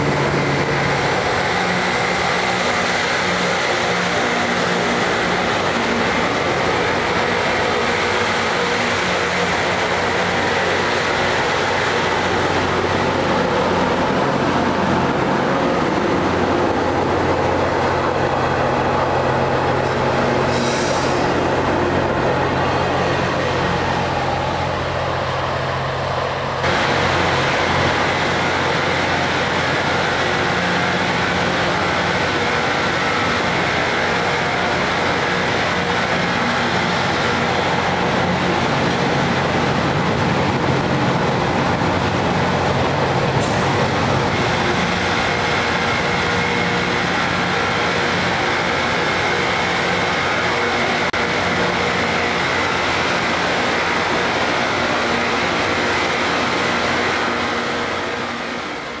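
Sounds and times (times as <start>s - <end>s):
diesel engine drone: 0.0s - 59.0s
rail grinding rushing noise: 0.0s - 59.0s.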